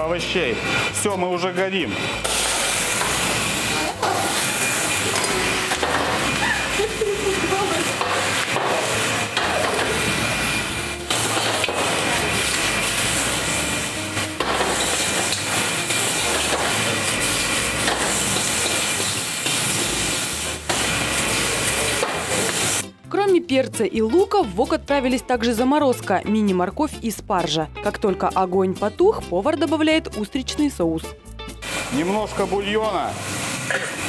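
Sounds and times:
metal spatula scraping wok: 0.0s - 22.9s
oil sizzling in a wok: 2.0s - 22.9s, 31.5s - 34.0s.

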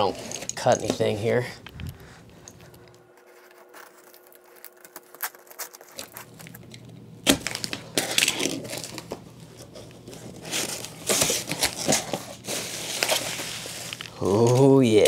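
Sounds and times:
packing crinkling: 1.7s - 15.0s
cardboard cracking: 3.2s - 14.8s.

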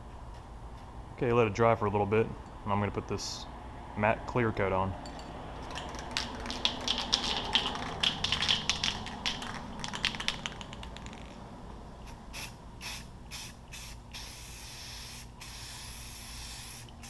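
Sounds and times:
aerosol can ball rattling: 5.6s - 11.4s
aerosol spray hiss: 12.4s - 17.0s.

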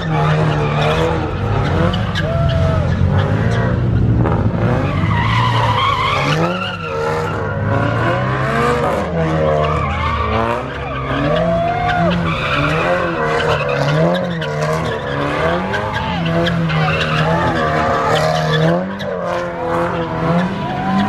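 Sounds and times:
car engine revving: 0.0s - 21.0s
tyres squealing: 9.4s - 21.0s.

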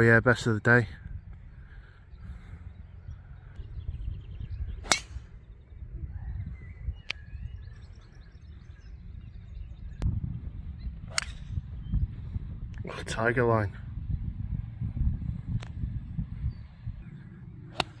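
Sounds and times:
steady low rumble: 0.8s - 18.0s
golf club striking ball: 4.8s - 5.3s.

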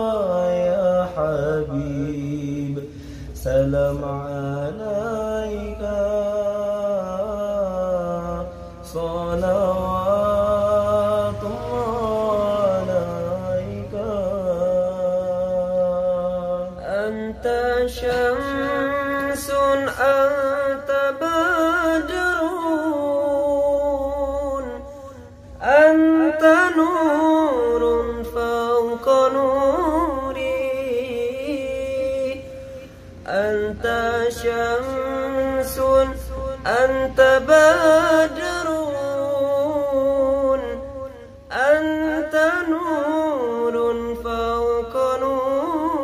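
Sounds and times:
man singing devotional song: 0.0s - 46.0s.

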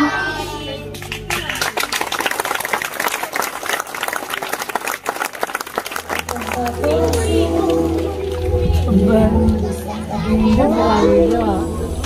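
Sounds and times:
audience applauding: 1.0s - 8.5s
music: 5.4s - 12.0s.

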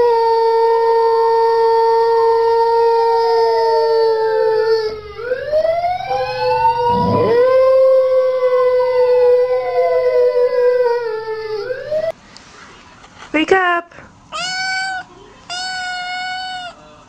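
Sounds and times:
dog howling: 0.0s - 12.1s
siren wailing: 2.2s - 12.1s.

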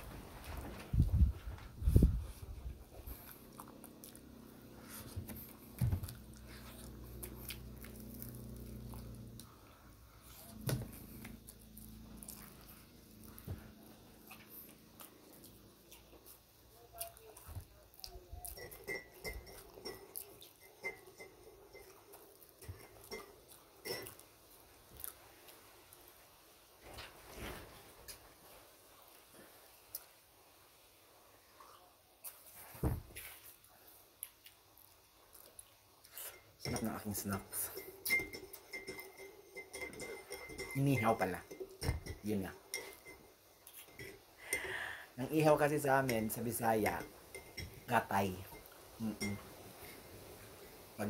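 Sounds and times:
faint low hum: 0.0s - 51.0s
person chewing: 2.3s - 25.8s, 34.0s - 36.6s, 43.6s - 44.6s
teaspoon clinking in a ceramic mug: 18.5s - 22.0s, 36.6s - 43.2s, 46.1s - 49.4s.

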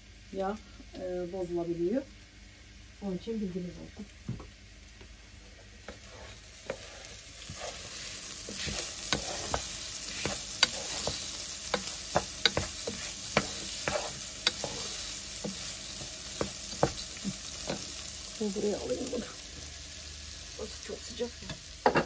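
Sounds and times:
rice sizzling in hot fat: 0.0s - 22.0s.

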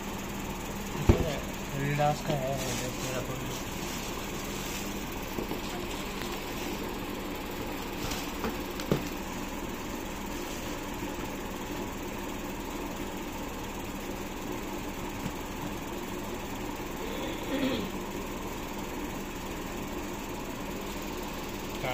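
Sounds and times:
mechanical hum: 0.0s - 21.9s
tissue paper rustling: 2.5s - 6.9s, 7.8s - 8.4s.

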